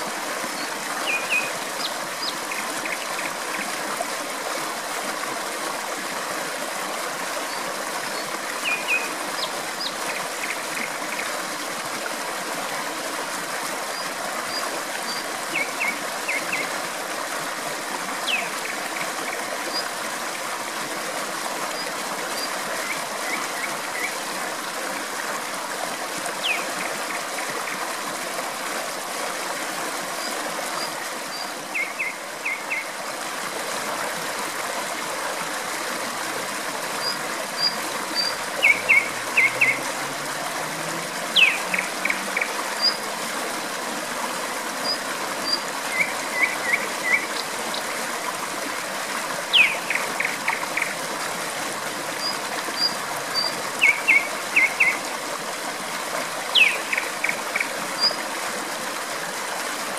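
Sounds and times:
stream water rushing: 0:00.0 - 0:59.9
nightingale singing: 0:01.0 - 0:01.5, 0:37.1 - 0:39.8, 0:41.3 - 0:43.0, 0:49.5 - 0:50.9, 0:52.8 - 0:55.0, 0:56.5 - 0:57.0.

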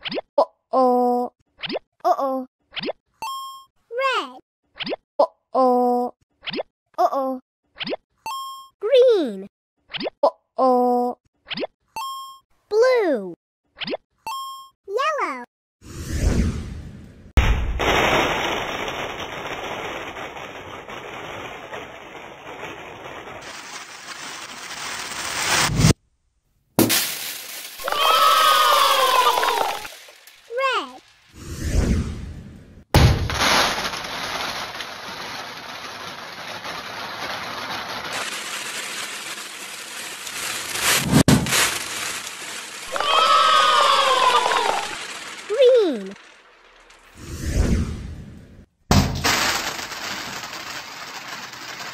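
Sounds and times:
balloon popping bang: 0:26.8 - 0:27.2, 0:32.9 - 0:33.8, 0:41.0 - 0:41.6, 0:48.9 - 0:49.5
beads pattering on a tabletop: 0:33.4 - 0:47.0, 0:49.2 - 0:51.9.

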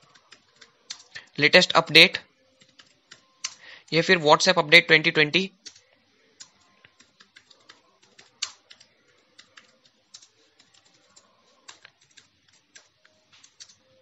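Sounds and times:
computer keyboard clicks: 0:00.0 - 0:01.3, 0:02.6 - 0:03.6, 0:05.6 - 0:05.8, 0:06.4 - 0:13.8.

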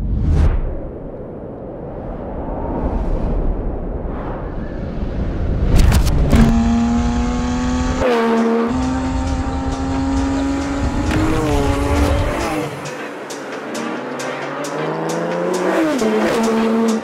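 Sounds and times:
car engine at high revs: 0:05.8 - 0:17.0.

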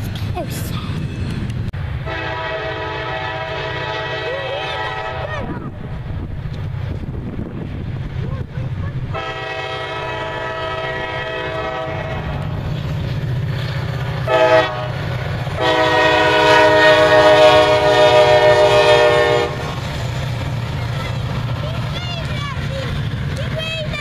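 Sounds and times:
locomotive engine rumble: 0:00.0 - 0:24.0
locomotive air horn: 0:02.0 - 0:05.4, 0:09.1 - 0:12.4, 0:14.3 - 0:15.0, 0:15.6 - 0:19.8.

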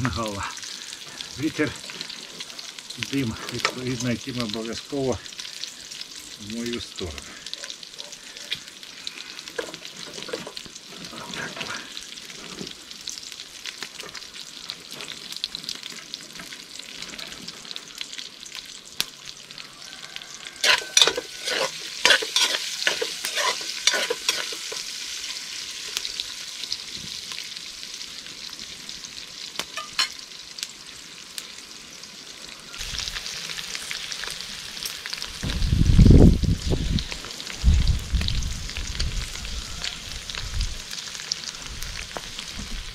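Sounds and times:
pork fat sizzling: 0:00.0 - 0:42.9
spoon scraping against pot: 0:20.6 - 0:24.8
low rumble: 0:35.4 - 0:39.4.

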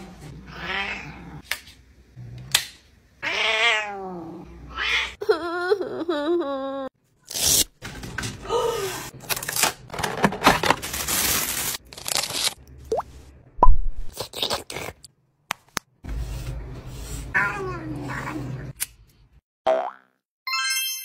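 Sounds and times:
cardboard tearing and crackling: 0:09.3 - 0:12.6.

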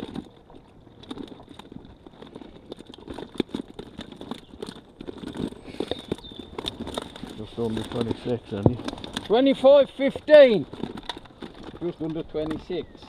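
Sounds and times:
fish flapping in wet sling: 0:00.0 - 0:09.4.

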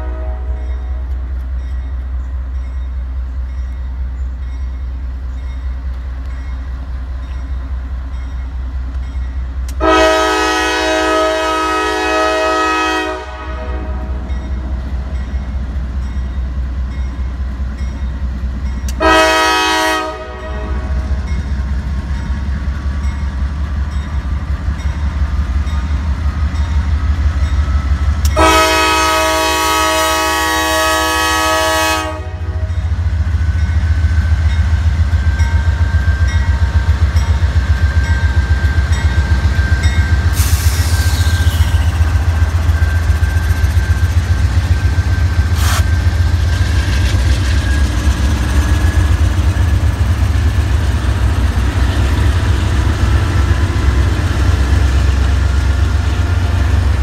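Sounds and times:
locomotive air horn: 0:00.0 - 0:01.0, 0:09.8 - 0:14.3, 0:19.0 - 0:21.2, 0:28.2 - 0:32.8, 0:40.2 - 0:42.0, 0:45.4 - 0:45.9
train wheel clatter: 0:33.4 - 0:57.0.

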